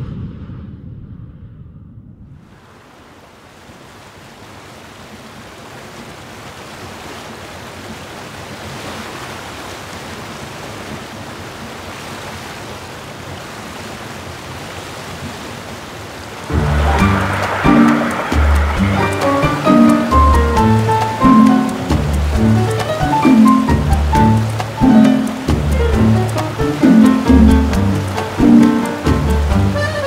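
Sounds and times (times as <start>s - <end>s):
wind: 0.0s - 30.0s
river water rushing: 2.5s - 30.0s
music: 16.5s - 30.0s.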